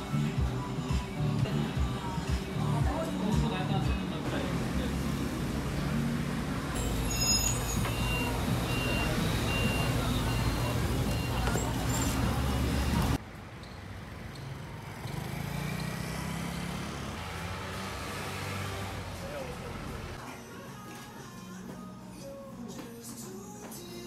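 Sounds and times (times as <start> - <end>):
short high beeps: 6.8 - 12.1.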